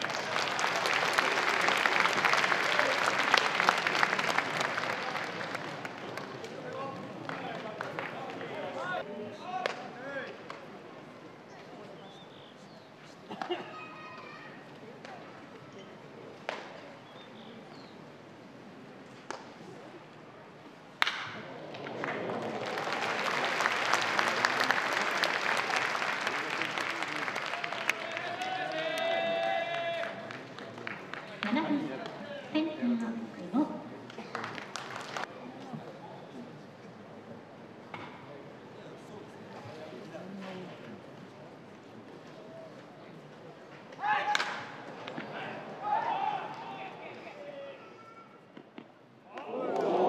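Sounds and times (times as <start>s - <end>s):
crowd applauding: 0.0s - 8.5s, 21.6s - 32.2s, 34.0s - 35.3s
wooden bat hitting ball: 21.0s - 21.4s.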